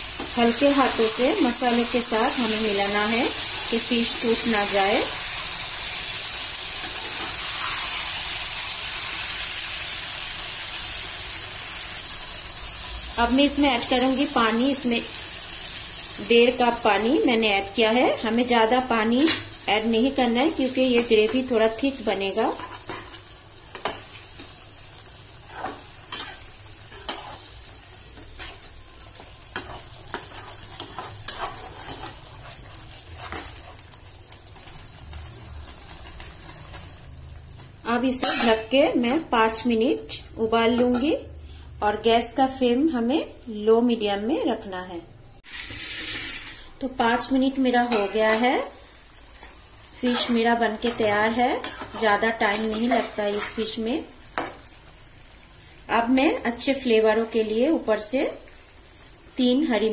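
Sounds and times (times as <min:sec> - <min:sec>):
fish sizzling in a pan: 0:00.0 - 0:38.7, 0:45.4 - 0:59.9
spatula stirring: 0:22.2 - 0:34.3, 0:49.4 - 0:53.8
sizzling hiss: 0:45.4 - 0:56.4.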